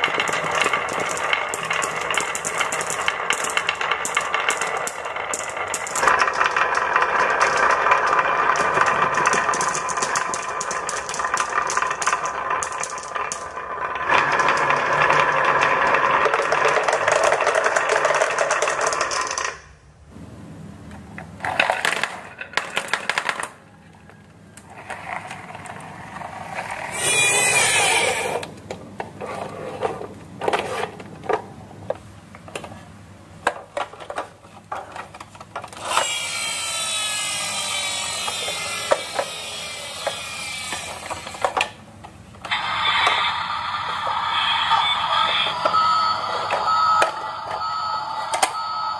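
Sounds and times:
marbles clicking on wood: 0.0s - 19.7s
marbles rolling on wooden track: 0.0s - 19.7s, 21.4s - 31.4s, 33.4s - 41.8s.

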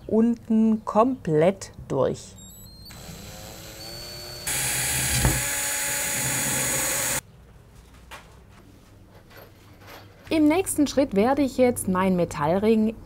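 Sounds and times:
cordless drill drilling metal: 2.5s - 7.2s.

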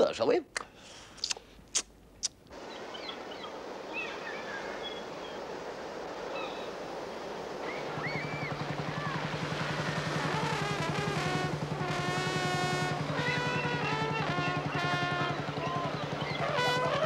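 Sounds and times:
gulls crying: 2.5s - 17.0s
sea waves washing on shore: 2.5s - 17.0s
low rapid throbbing: 7.4s - 17.0s.

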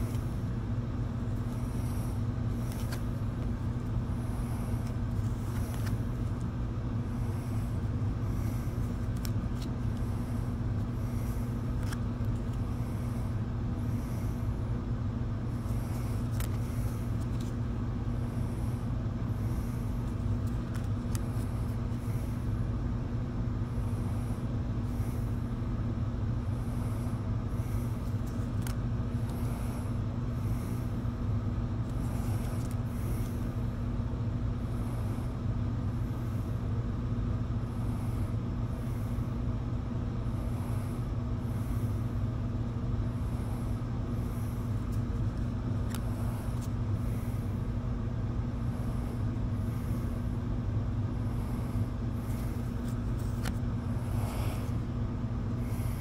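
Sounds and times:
low droning hum: 0.0s - 56.0s
cards sliding off a stack: 2.5s - 3.6s, 4.8s - 6.5s, 8.7s - 10.0s, 11.4s - 12.7s, 15.6s - 17.6s, 20.0s - 21.8s, 28.0s - 29.4s, 31.8s - 33.4s, 52.3s - 53.6s.

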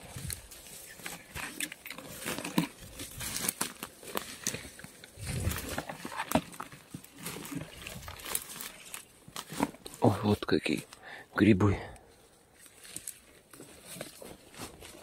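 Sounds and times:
plants rustling against legs: 0.0s - 11.1s, 12.0s - 15.0s
leaves and twigs crackling underfoot: 0.0s - 15.0s.

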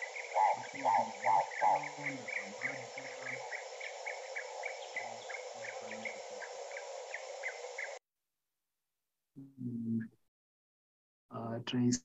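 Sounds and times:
steady hiss: 0.0s - 8.0s.

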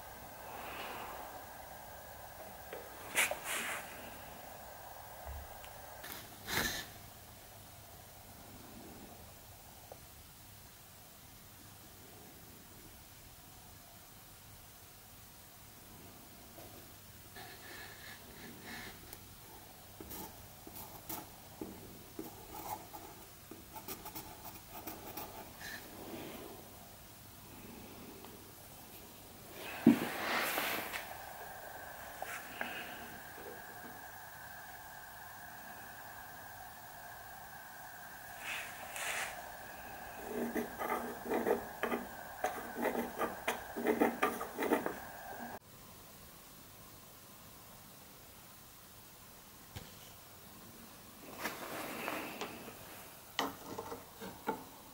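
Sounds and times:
faint steady hum: 0.0s - 54.9s
pencil scratching on wood: 22.2s - 25.8s, 39.9s - 45.6s.

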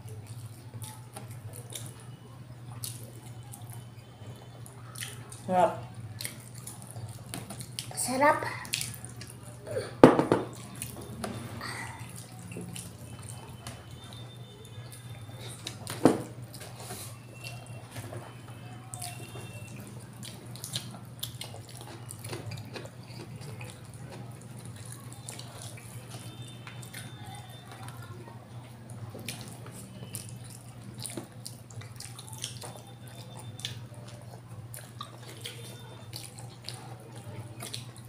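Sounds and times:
wet chewing and lip smacks: 4.7s - 5.5s, 6.1s - 8.0s, 8.6s - 9.6s, 18.9s - 28.1s, 28.9s - 38.0s.

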